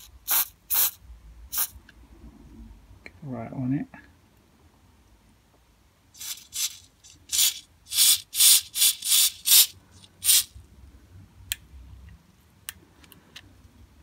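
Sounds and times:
aerosol spray hissing bursts: 0.0 - 1.8, 6.2 - 10.5.

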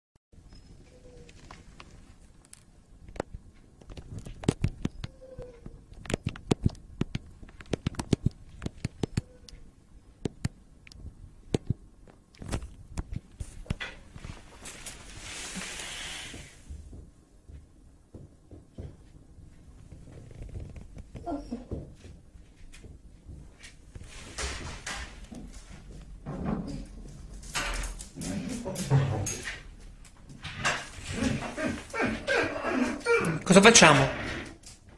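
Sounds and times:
breathy hiss: 15.1 - 16.7
dog claws clicking on tile floor: 26.7 - 31.4.

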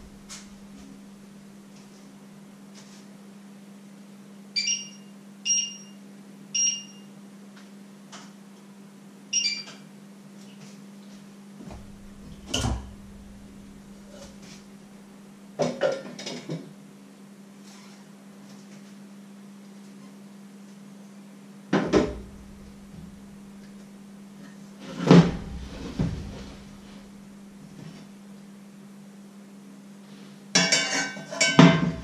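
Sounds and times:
low hum: 0.0 - 1.6, 11.6 - 15.2, 22.0 - 24.4, 25.2 - 27.8
pots and pans knocking: 30.6 - 32.0.

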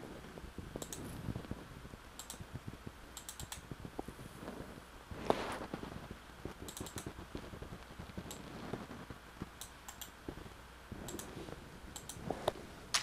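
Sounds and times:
mouse clicks: 0.8 - 1.1, 2.2 - 2.4, 3.2 - 3.6, 6.6 - 7.1, 9.6 - 10.2, 12.0 - 12.2.

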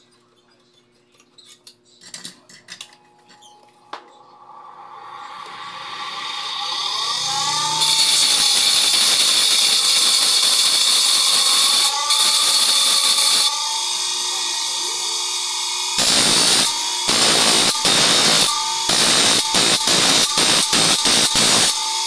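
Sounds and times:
grinding wheel grinding saw teeth: 4.9 - 22.0
grinding wheel spinning free: 5.0 - 22.0.

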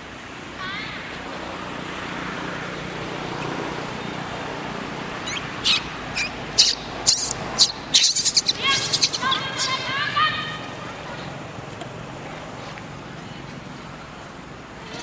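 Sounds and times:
steady outdoor noise: 0.0 - 15.0
baby monkey squealing: 5.2 - 9.9.

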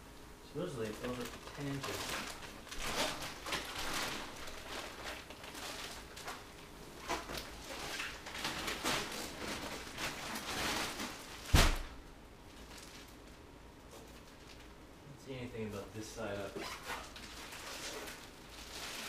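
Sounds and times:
plastic wrapping crinkling: 0.5 - 14.9, 15.6 - 19.0
mattress thumping down: 11.5 - 11.9.

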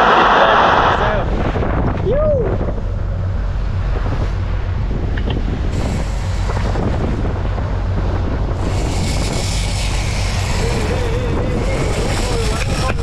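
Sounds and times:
boat engine droning: 0.0 - 13.0
wind buffeting microphone: 0.0 - 13.0
rushing hiss: 5.7 - 13.0.

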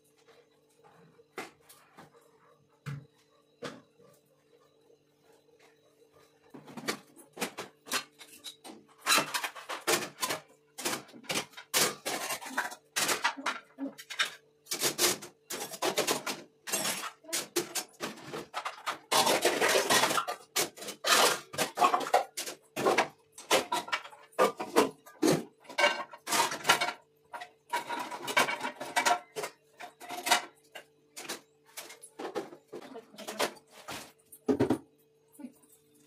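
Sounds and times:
metal dishes clattering on rack: 6.7 - 34.8.

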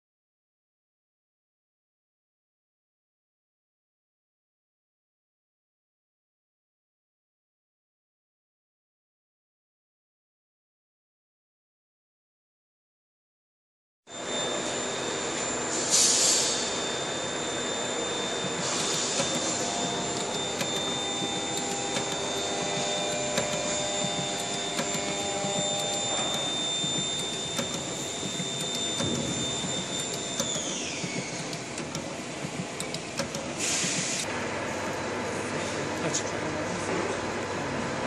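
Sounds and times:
high machine whine: 14.1 - 38.0
machine noise: 14.1 - 38.0
short hissing bursts: 33.6 - 34.3.

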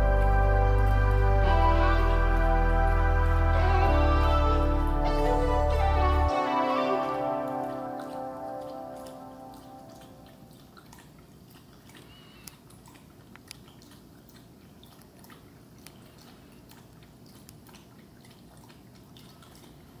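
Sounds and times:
background music: 0.0 - 10.3.

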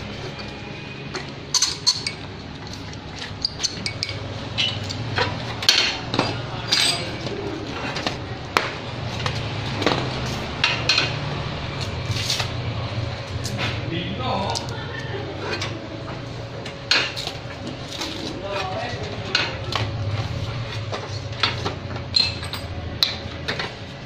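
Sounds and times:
steady low hum: 0.0 - 24.0
metallic clinks and knocks: 1.1 - 7.2, 21.4 - 23.7.

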